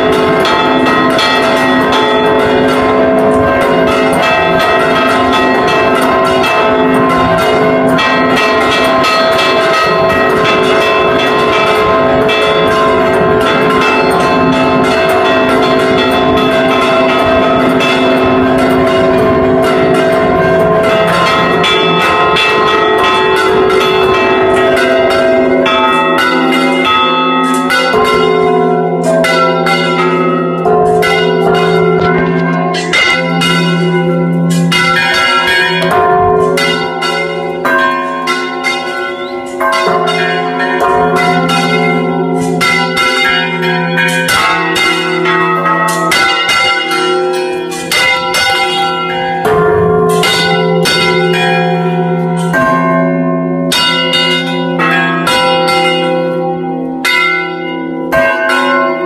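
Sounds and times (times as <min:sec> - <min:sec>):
church bells pealing: 0:00.0 - 0:59.0
deeper bell strokes: 0:10.1 - 0:57.3.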